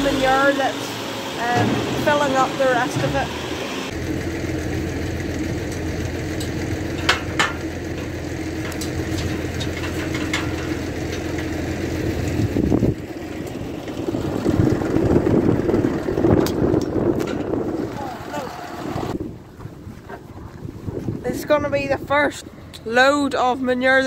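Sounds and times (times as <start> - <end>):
tractor engine idling: 0.0 - 20.6
metal gate chain clinking: 6.4 - 11.5.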